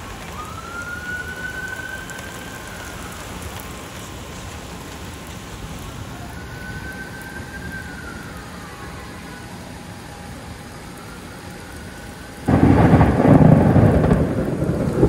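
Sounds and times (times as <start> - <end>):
steady rain falling: 0.0 - 15.0
thunder clap rumbling: 12.4 - 15.0.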